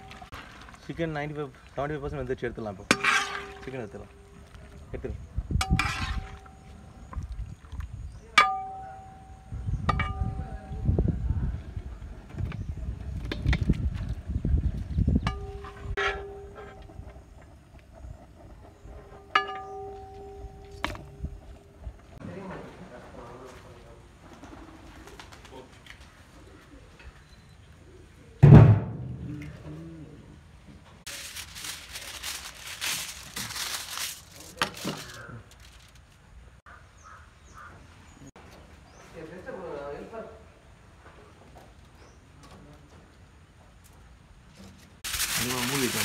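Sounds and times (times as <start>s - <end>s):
metal ladle clanging on pot: 2.9s - 4.5s, 5.6s - 6.8s, 8.4s - 10.8s, 15.3s - 16.9s, 19.3s - 21.2s.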